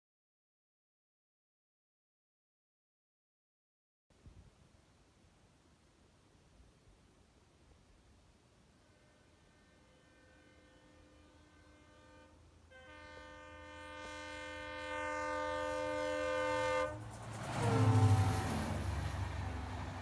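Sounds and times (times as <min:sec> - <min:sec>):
low rumble of train: 0:06.9 - 0:20.0
locomotive horn blasts: 0:08.8 - 0:18.6.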